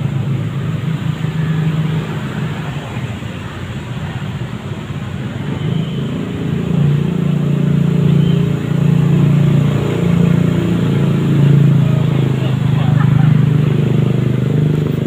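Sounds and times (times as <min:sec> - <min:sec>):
street noise: 0:00.0 - 0:15.0
vehicle engine hum: 0:00.0 - 0:15.0.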